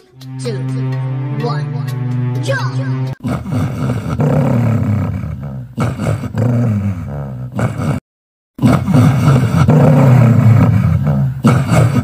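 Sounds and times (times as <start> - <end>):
dog growling: 3.2 - 8.0, 8.6 - 12.0.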